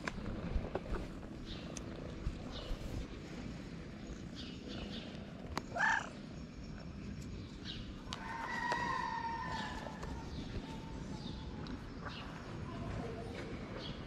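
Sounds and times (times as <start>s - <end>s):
cat purring: 0.0s - 7.2s
cat meowing: 5.7s - 6.2s.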